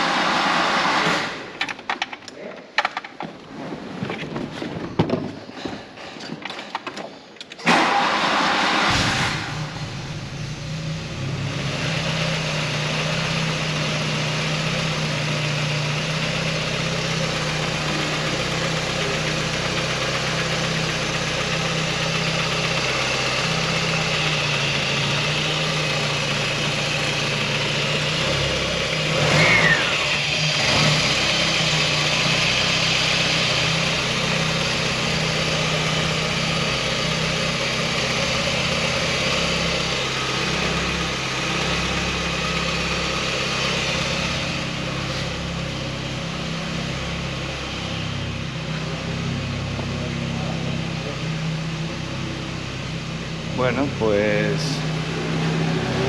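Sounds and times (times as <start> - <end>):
car engine idling: 7.3 - 56.0.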